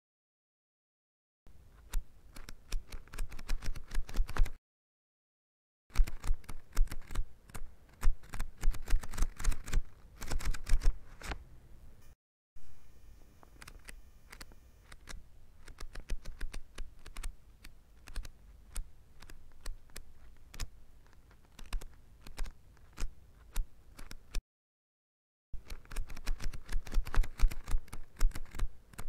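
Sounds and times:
book pages turning: 6.0 - 11.4, 13.6 - 24.4, 25.6 - 29.0.

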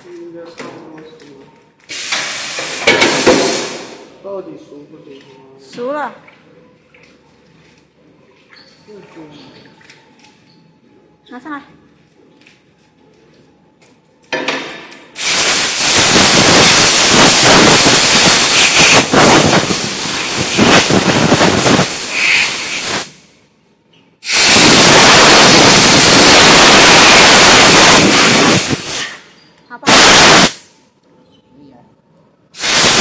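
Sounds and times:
compressed air blow gun hissing: 1.9 - 4.0, 15.2 - 23.3, 24.2 - 29.3, 29.9 - 30.7, 32.6 - 33.0.

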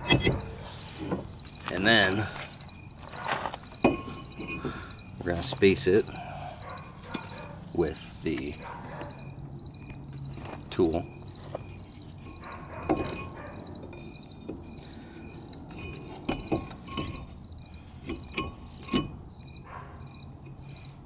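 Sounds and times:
screwdriver clicking and scraping metal: 0.0 - 1.0
insects chirping: 0.0 - 21.0.

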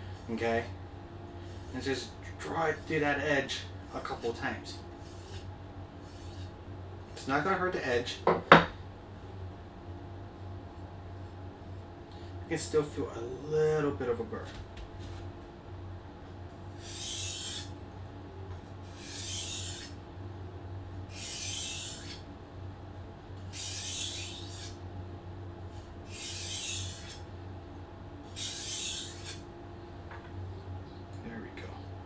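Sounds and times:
low hum: 0.0 - 32.0
knife scraping on whetstone: 5.0 - 6.6, 16.8 - 17.7, 18.9 - 20.0, 21.1 - 22.2, 23.5 - 24.8, 26.1 - 27.2, 28.3 - 29.4.

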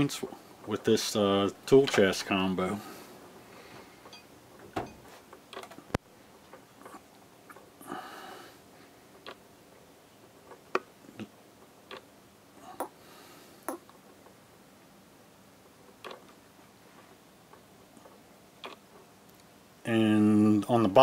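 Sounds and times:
faint clicks and knocks: 3.8 - 7.7.

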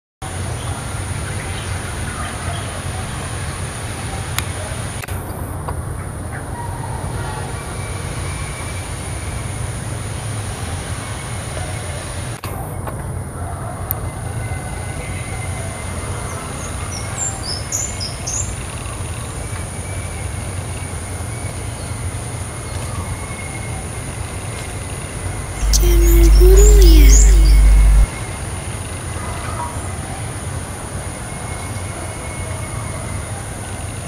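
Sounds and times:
low background rumble: 25.3 - 28.1
thin high whine: 25.4 - 28.1.

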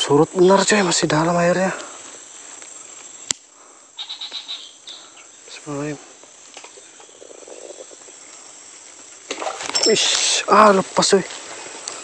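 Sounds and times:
insects droning: 0.0 - 12.0
sharp click: 3.2 - 3.5.

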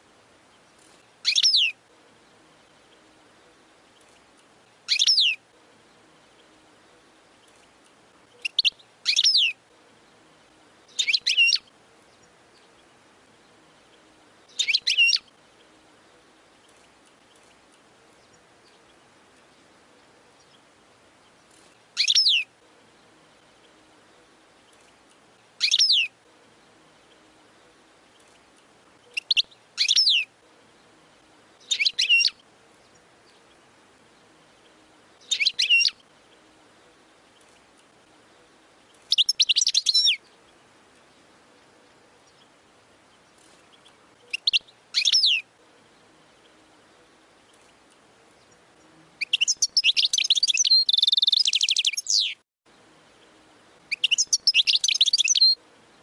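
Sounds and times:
goldfinch twittering: 1.2 - 1.8, 4.9 - 5.4, 8.3 - 9.6, 10.9 - 11.7, 13.8 - 15.3, 22.0 - 22.5, 25.6 - 26.1, 29.0 - 30.3, 31.6 - 32.4, 35.2 - 36.0, 39.0 - 40.2, 43.2 - 45.4, 49.2 - 52.4, 53.9 - 55.6.

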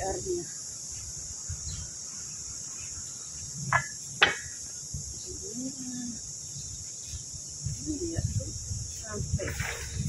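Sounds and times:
insects shrilling: 0.0 - 10.0
sharp knocks: 3.7 - 4.5.

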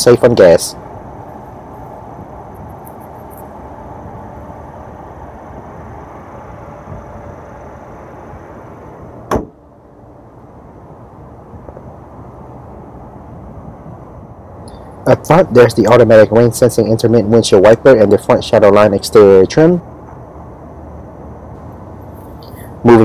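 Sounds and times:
steady engine bay noise: 0.0 - 23.0
car hood slamming shut: 9.3 - 9.6.

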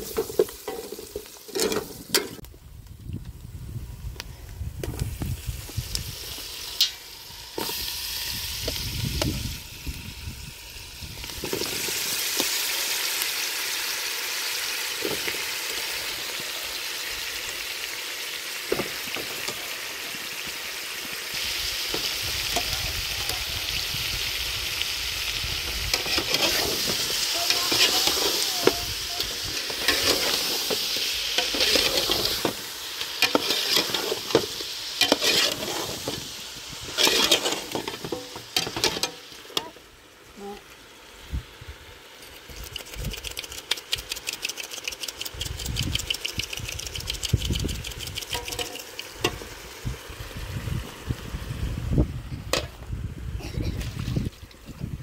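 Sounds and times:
food sizzling in a pan: 0.0 - 2.4, 4.9 - 52.8
metal utensil scraping a pan: 25.9 - 36.2, 36.9 - 39.7, 48.3 - 49.4.

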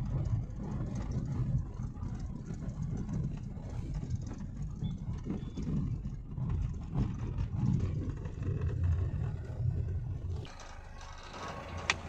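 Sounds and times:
road rumble inside car: 0.0 - 12.0.

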